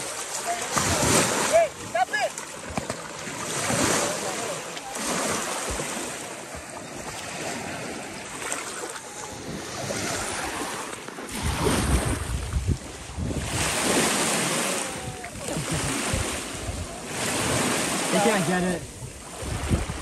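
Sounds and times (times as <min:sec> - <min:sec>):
waves washing onto sandy shore: 0:00.0 - 0:20.0
wind buffeting microphone: 0:11.3 - 0:17.9, 0:18.8 - 0:20.0.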